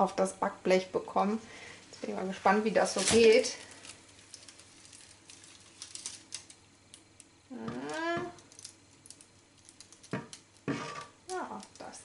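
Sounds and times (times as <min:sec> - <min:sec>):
paper and cloth crackling: 0:02.7 - 0:06.5.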